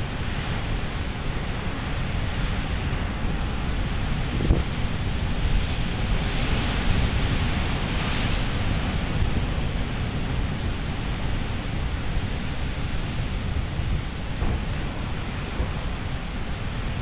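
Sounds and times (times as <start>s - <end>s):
surf breaking on rocks: 14.2s - 17.0s.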